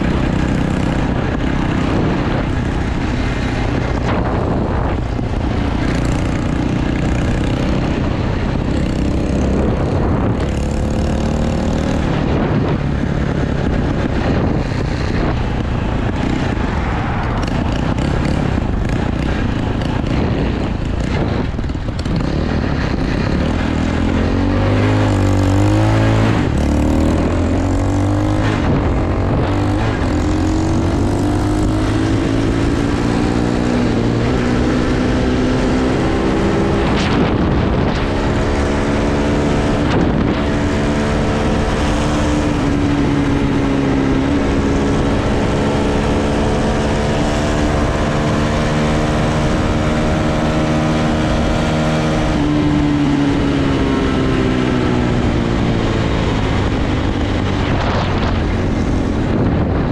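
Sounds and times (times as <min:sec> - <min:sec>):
dirt bike engine running: 0:00.0 - 0:59.9
rush of air: 0:56.6 - 0:59.9.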